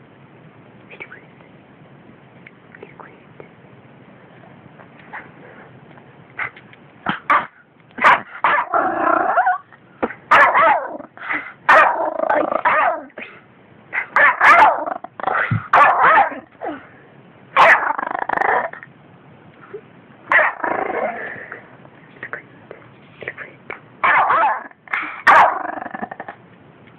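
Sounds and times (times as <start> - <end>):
small dog barking: 7.1 - 9.6, 10.3 - 13.1, 14.0 - 16.5, 17.6 - 18.7, 20.3 - 20.6, 24.0 - 25.6
dog growling: 8.6 - 9.6, 11.9 - 13.1, 17.6 - 18.9, 20.3 - 21.7, 24.5 - 26.4.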